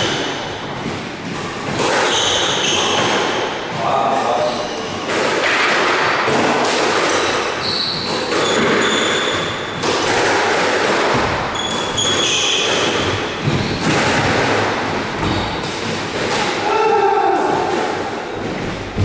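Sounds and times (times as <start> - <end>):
squash ball hitting rackets and walls: 0.0 - 19.0
shoes squeaking on court floor: 1.2 - 3.4, 7.6 - 9.9, 11.4 - 14.2, 15.2 - 15.7.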